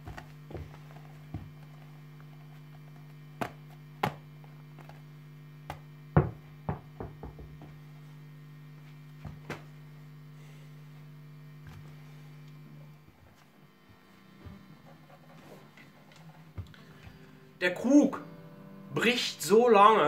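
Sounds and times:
electrical hum: 0.0 - 20.0
ball bouncing on floor: 3.4 - 4.2, 5.7 - 7.8
ball knocking on floor: 3.4 - 4.2, 5.7 - 7.8.

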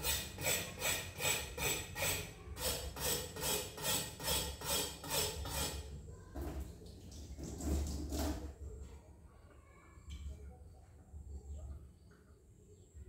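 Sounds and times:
rasping scraping strokes: 0.0 - 5.9.

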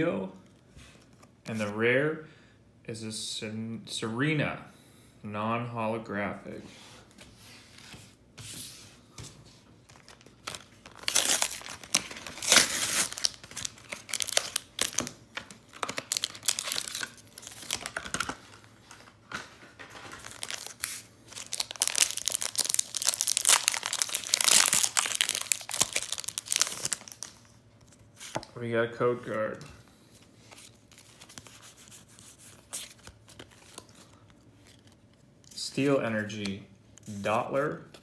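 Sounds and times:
foil wrapper crinkling: 9.9 - 19.2, 19.9 - 27.6.

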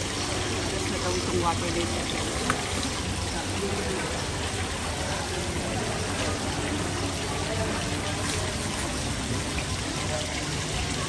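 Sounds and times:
water pouring and splashing: 0.0 - 11.0.

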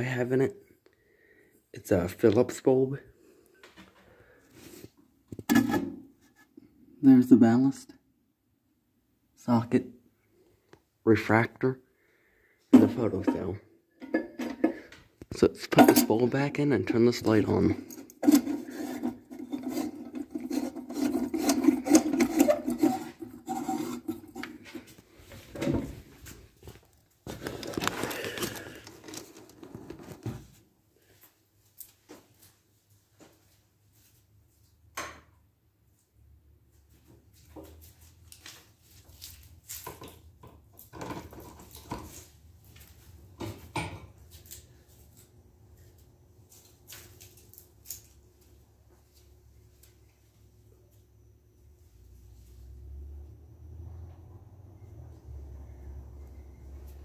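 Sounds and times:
scraping and rubbing on glass: 17.8 - 24.9.

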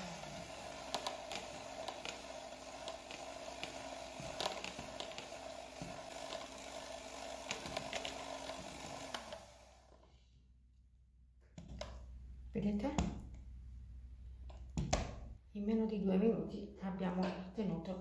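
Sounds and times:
electric mixer motor hum: 0.0 - 10.1.

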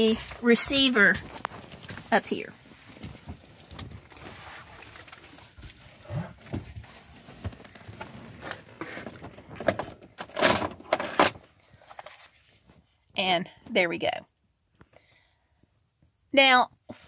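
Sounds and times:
fabric rustling on microphone: 0.0 - 9.5.

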